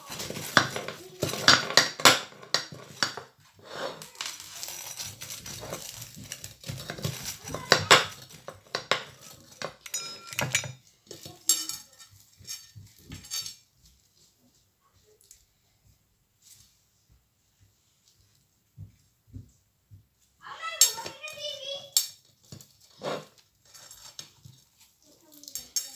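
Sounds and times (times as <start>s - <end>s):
pizza cutter scraping on plate: 3.6s - 4.1s, 22.9s - 24.1s.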